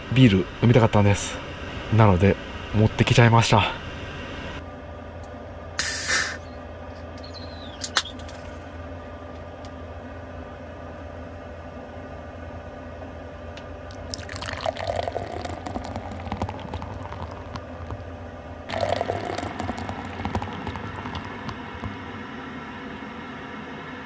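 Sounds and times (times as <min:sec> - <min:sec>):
beer splashing into glass: 0:13.9 - 0:18.1, 0:18.7 - 0:22.0
beer foam crackling: 0:13.9 - 0:22.2.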